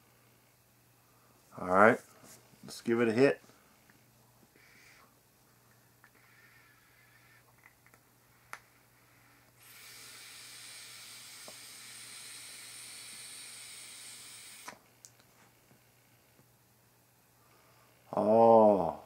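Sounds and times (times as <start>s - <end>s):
air hissing through atomizer: 6.1s - 7.5s, 8.4s - 14.8s.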